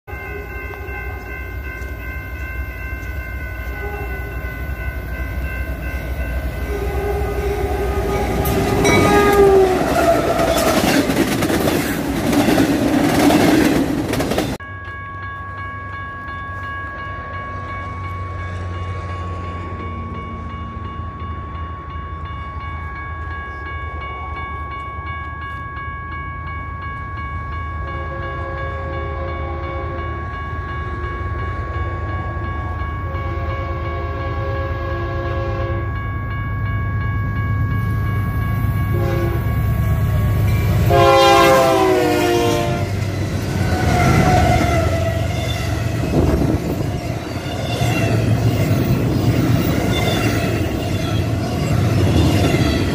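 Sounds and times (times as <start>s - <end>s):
train horn: 0.1s - 1.6s, 3.6s - 4.6s, 6.6s - 11.0s, 27.8s - 35.9s, 38.9s - 39.6s, 40.7s - 46.5s
distant train approaching: 0.1s - 52.9s
train wheels rushing on rail: 1.1s - 14.6s, 37.7s - 52.9s.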